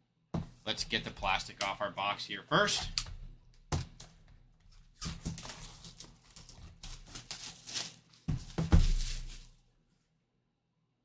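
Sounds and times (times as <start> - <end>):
cellophane tearing and crinkling: 4.7 - 9.6
cardboard box thump: 8.3 - 9.4.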